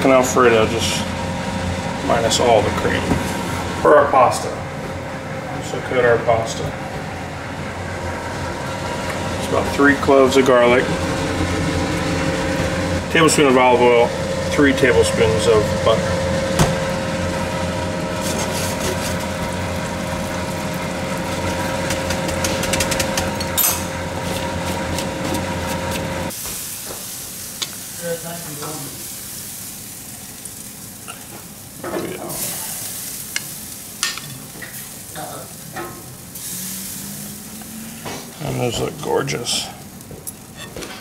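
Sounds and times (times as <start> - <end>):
steady hum: 0.0 - 26.4
garlic sizzling in a pan: 26.2 - 40.7.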